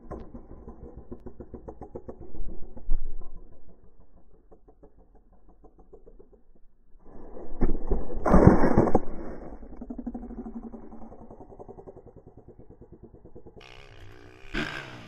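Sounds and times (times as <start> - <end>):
dirt bike engine idling: 0.0 - 7.1, 9.5 - 15.0
camera scraping against dirt: 7.3 - 9.6.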